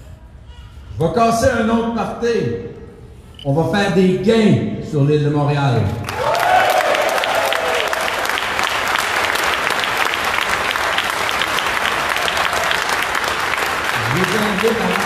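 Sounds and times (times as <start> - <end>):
crowd applauding: 6.0 - 15.0
person cheering: 6.2 - 8.2.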